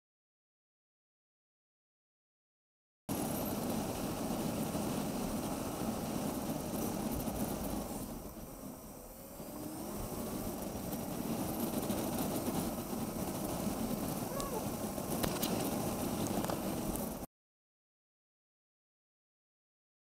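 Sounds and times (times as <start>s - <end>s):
wind noise: 3.1s - 17.3s.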